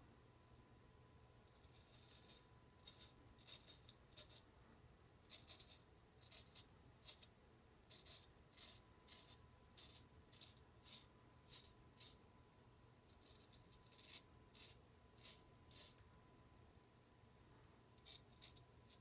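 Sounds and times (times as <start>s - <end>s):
razor scraping stubble: 1.6s - 4.4s, 5.3s - 7.3s, 7.9s - 12.2s, 13.1s - 16.0s, 18.0s - 19.0s.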